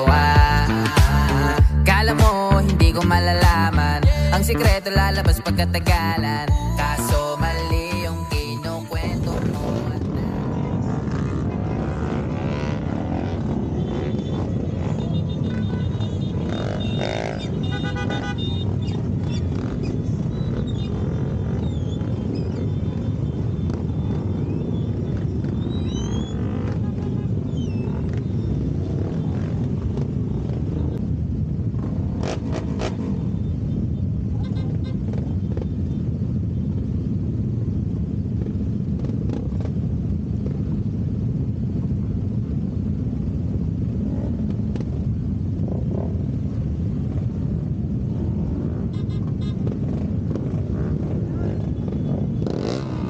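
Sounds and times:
motorcycles idling: 0:00.0 - 0:24.3, 0:43.4 - 0:53.0.

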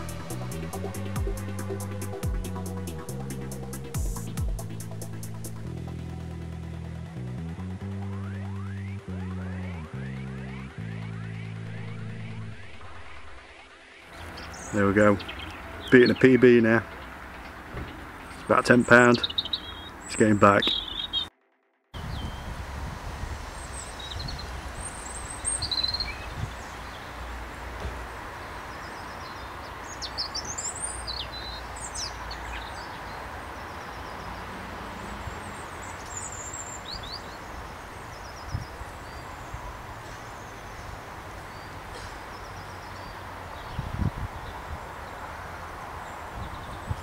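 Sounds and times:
dull low thumps: 0:00.0 - 0:13.4
small birds chirping: 0:08.1 - 0:21.3, 0:23.5 - 0:47.0
low wind rumble: 0:22.0 - 0:28.7, 0:43.5 - 0:47.0
outdoor hiss: 0:22.0 - 0:29.1.

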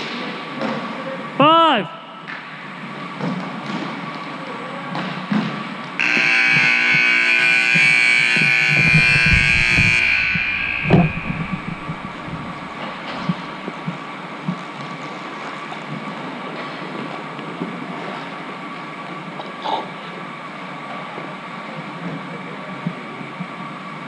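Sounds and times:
scoreboard horn blaring: 0:06.0 - 0:13.3
sharp knock: 0:08.7 - 0:13.2.

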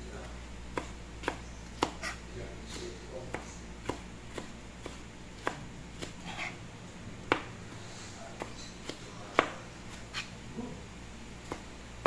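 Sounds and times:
knife chopping on cutting board: 0:00.2 - 0:06.6, 0:07.3 - 0:10.3, 0:11.4 - 0:11.7.

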